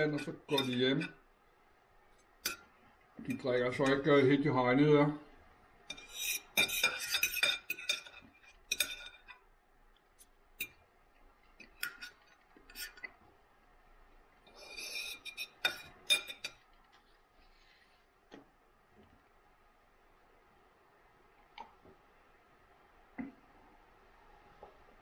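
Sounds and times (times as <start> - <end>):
knife and fork clinking on plate: 0.1 - 1.2, 5.9 - 9.4, 14.7 - 16.6.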